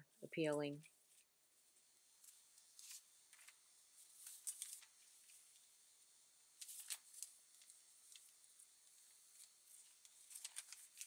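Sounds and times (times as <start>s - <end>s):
paper and tape rustling: 2.2s - 5.6s, 6.6s - 11.0s.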